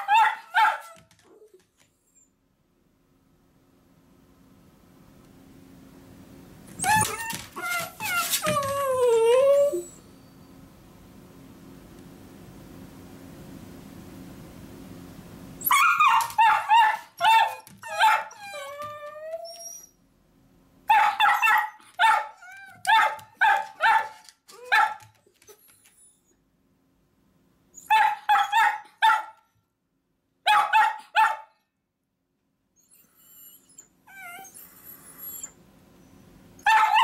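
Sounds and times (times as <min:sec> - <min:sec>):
dogs barking sharply: 0:00.0 - 0:01.1, 0:15.7 - 0:18.4, 0:20.9 - 0:25.2, 0:27.9 - 0:29.4, 0:30.5 - 0:31.5, 0:36.6 - 0:37.0
dog whining: 0:06.7 - 0:10.3, 0:15.6 - 0:20.0, 0:32.8 - 0:37.0.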